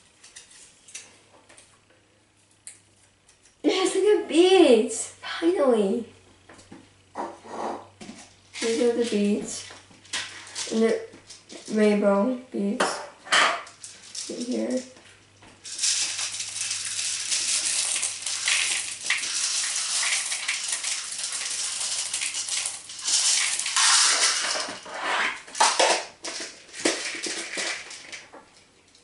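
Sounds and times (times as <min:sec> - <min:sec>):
beads rattling in a cup: 0:13.7 - 0:15.0, 0:15.6 - 0:28.2.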